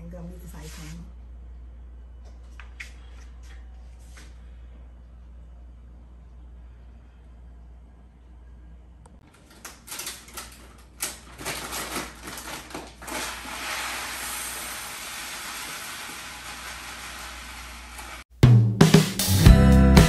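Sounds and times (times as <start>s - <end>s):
food sizzling: 13.4s - 18.3s.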